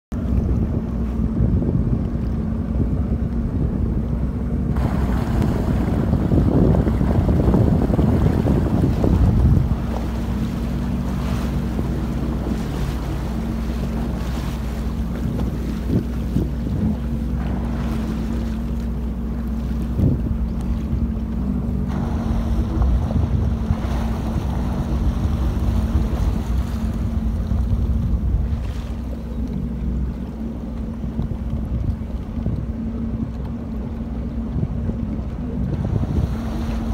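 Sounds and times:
boat engine running: 0:00.1 - 0:36.9
choppy sea slapping: 0:00.1 - 0:36.9
wind buffeting microphone: 0:00.1 - 0:36.9
wind gust thumps on microphone: 0:04.8 - 0:10.4.

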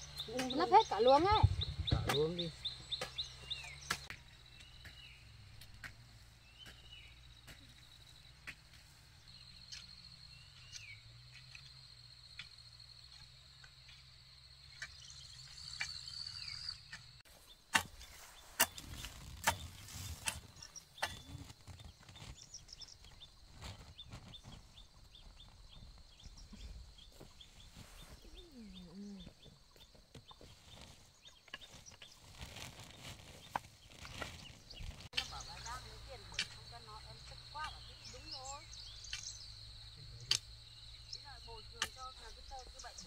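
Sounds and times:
bird chirping: 0:00.0 - 0:12.0, 0:13.1 - 0:43.0
knocks and thumps: 0:01.2 - 0:03.2
insect drone: 0:06.9 - 0:17.2, 0:33.4 - 0:43.0.

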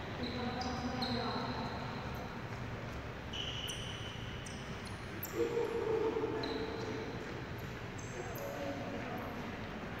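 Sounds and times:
athletic shoes squeaking on court: 0:00.2 - 0:01.5, 0:03.3 - 0:05.0.

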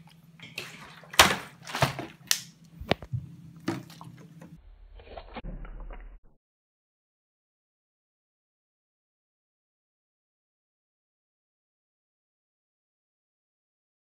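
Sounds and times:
low hum: 0:02.6 - 0:06.4.

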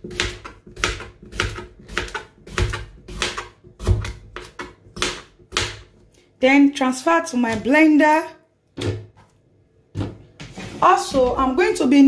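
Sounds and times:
knife chopping cucumber on board: 0:00.0 - 0:06.0.

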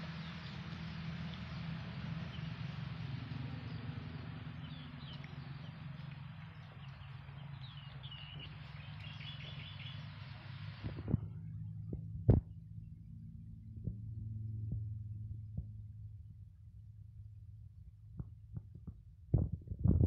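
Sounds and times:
small birds chirping: 0:00.0 - 0:11.2
steady low hum and hiss: 0:00.0 - 0:19.4.

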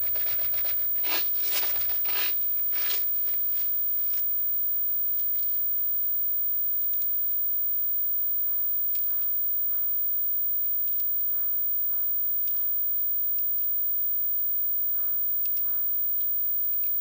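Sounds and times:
plastic pellets rattling: 0:00.0 - 0:03.7.

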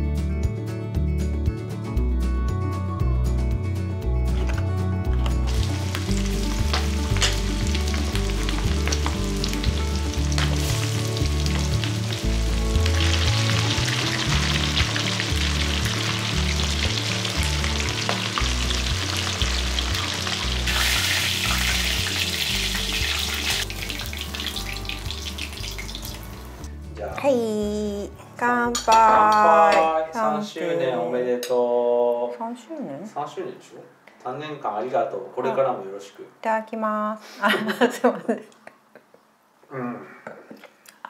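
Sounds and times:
soft background music with bass: 0:00.0 - 0:32.1
chicken frying in hot oil: 0:05.5 - 0:26.5.

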